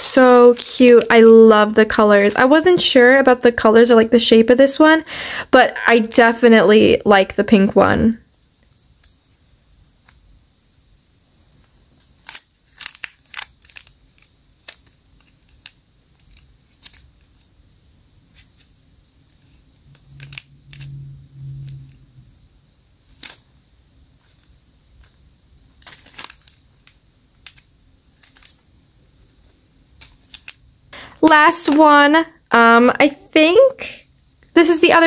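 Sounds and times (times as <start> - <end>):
plastic packaging crinkling: 0.0 - 2.0, 12.0 - 17.5, 23.0 - 23.6, 24.2 - 30.6
short low hum: 19.8 - 22.6.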